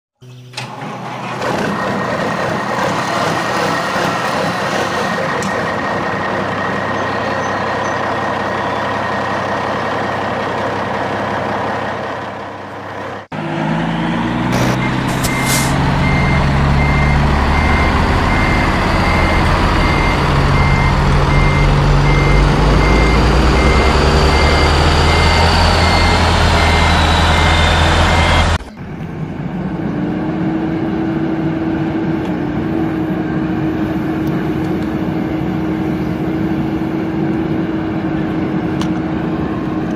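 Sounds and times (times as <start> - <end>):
truck engine running: 0.7 - 39.9
reversing alarm beeping: 14.5 - 28.6.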